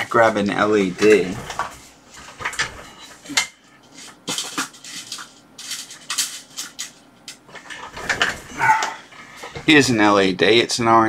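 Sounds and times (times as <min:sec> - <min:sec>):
small electronic parts clattering: 0:01.0 - 0:09.8.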